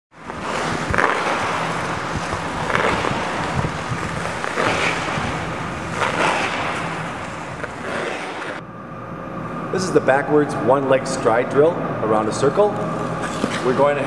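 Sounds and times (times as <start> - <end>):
skate blades scraping ice: 0.2 - 8.6, 13.2 - 13.9.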